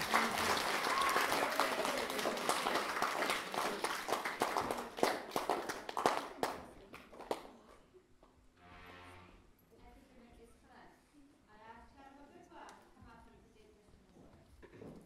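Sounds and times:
crowd applauding: 0.0s - 7.4s.

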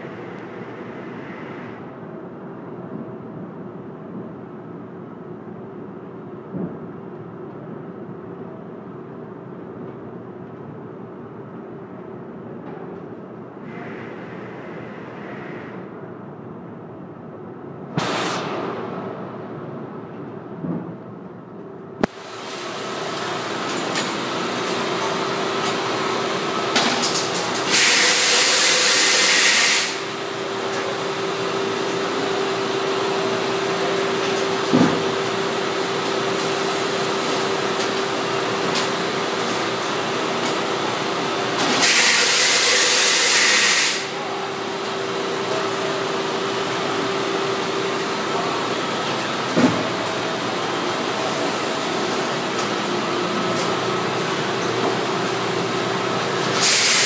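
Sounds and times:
loud air hiss: 27.4s - 30.6s, 41.6s - 44.5s, 56.4s - 57.0s.

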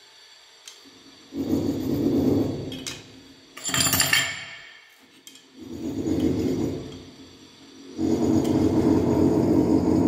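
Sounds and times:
screwdriver scraping and grinding: 5.0s - 7.0s.

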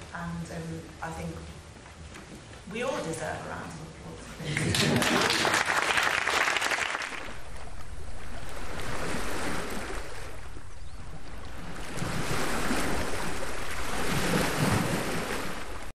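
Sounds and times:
sea surf washing on beach: 4.8s - 15.9s.

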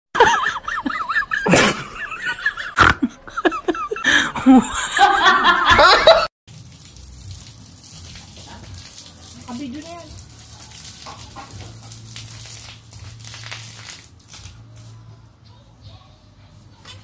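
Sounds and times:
person laughing loudly: 0.2s - 6.3s.

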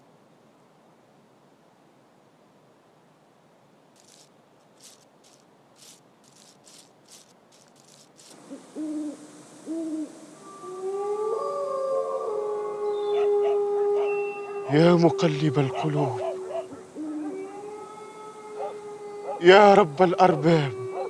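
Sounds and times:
soft scratchy strokes: 4.0s - 9.2s
hooting calls: 4.0s - 21.0s
overlapping howls: 7.8s - 21.0s.

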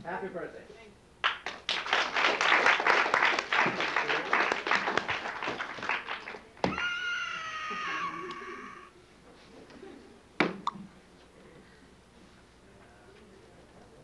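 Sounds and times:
audience applauding: 1.2s - 8.8s.

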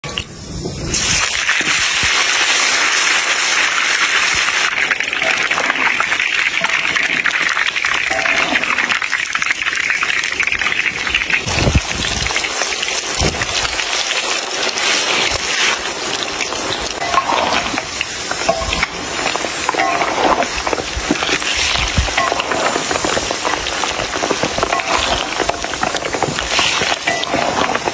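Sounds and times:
juice sizzling in a hot wok: 0.1s - 27.9s
metal spatula stirring: 17.0s - 27.9s.

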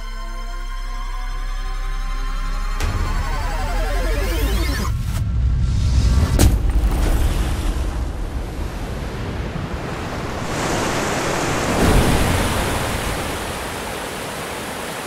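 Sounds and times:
rushing water surge: 6.6s - 15.0s.

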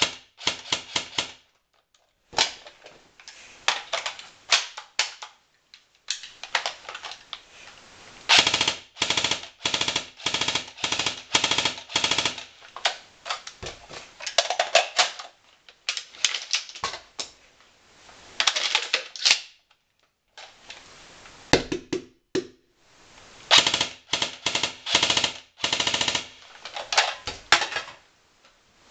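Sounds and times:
airsoft rifle firing bursts: 0.0s - 1.4s, 8.3s - 12.5s, 23.5s - 26.4s.

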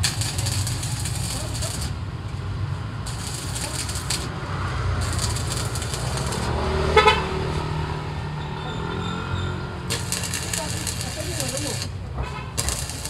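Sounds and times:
arc welder crackling: 0.0s - 6.6s, 9.8s - 13.0s.

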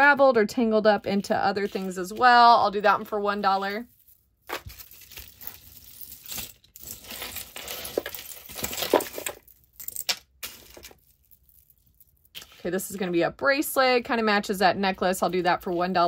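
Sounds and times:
jewelry chains and beads clinking: 1.4s - 12.7s.

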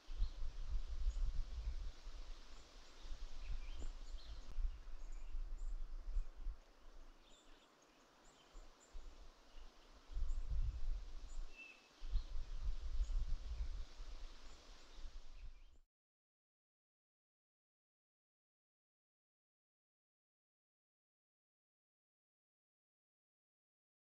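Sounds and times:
wind rumbling on microphone: 0.0s - 7.1s, 10.1s - 15.8s
small birds chirping: 2.5s - 15.8s.

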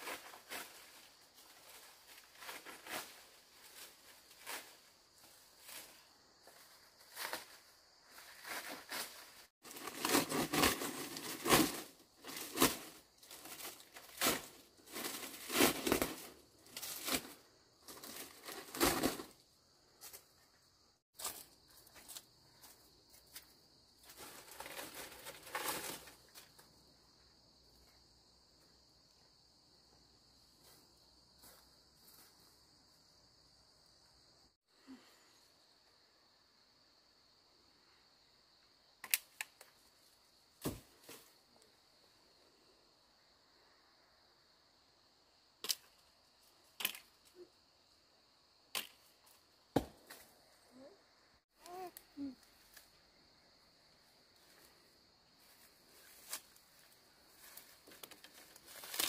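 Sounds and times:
rustling and crinkling: 0.0s - 19.4s, 21.1s - 26.8s, 54.3s - 59.0s.

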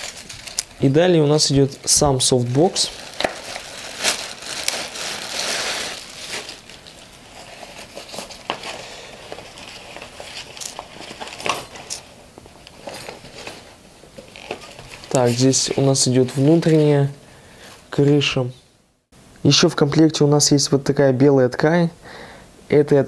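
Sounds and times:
plastic bag crinkling: 0.0s - 17.0s
fabric rustling: 1.6s - 12.2s.

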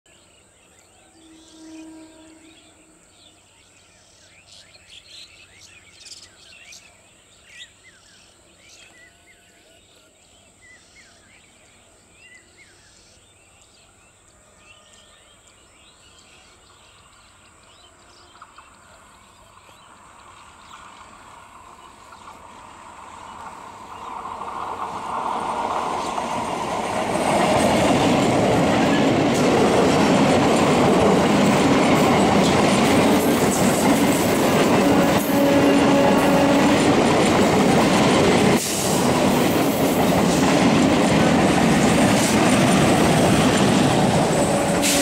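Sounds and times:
electric train approaching: 16.0s - 45.0s.

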